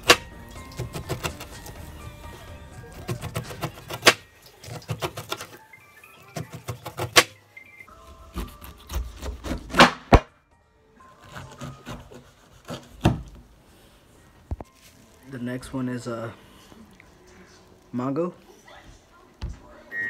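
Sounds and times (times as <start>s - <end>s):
knife cutting pineapple rind: 0.0s - 1.8s, 2.9s - 5.6s, 8.2s - 9.9s, 11.2s - 13.3s
background music: 0.0s - 20.0s.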